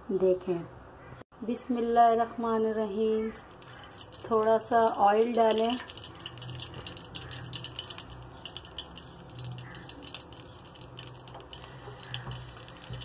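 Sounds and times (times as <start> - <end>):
oil crackling in pan: 2.8 - 13.0.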